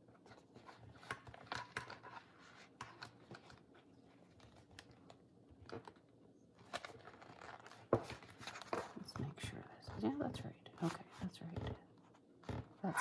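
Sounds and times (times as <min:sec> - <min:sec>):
paper and card rustling: 0:00.0 - 0:10.2.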